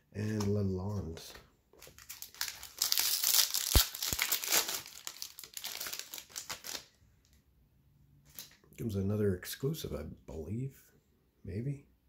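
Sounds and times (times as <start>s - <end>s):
plastic wrapper tearing and crinkling: 1.8s - 6.9s.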